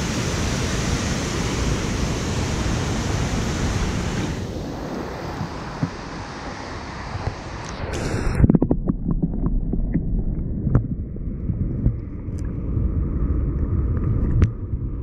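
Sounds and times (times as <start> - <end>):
river water rushing: 0.0 - 8.2.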